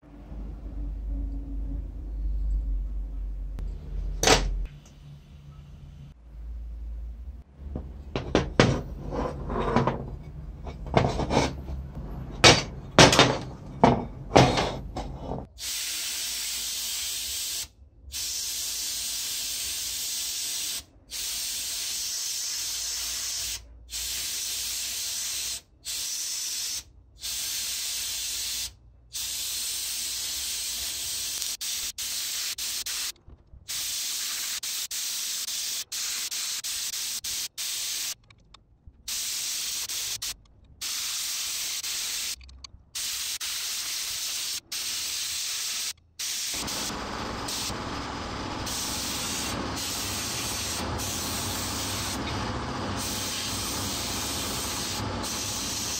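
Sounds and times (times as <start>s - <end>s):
sandblasting gun hissing: 15.6s - 33.1s, 33.7s - 38.2s, 39.1s - 42.4s, 43.0s - 55.9s.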